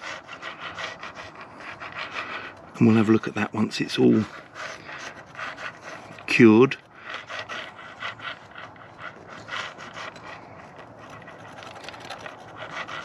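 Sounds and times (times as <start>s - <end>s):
hand rubbing and scraping surface: 0.0s - 13.0s.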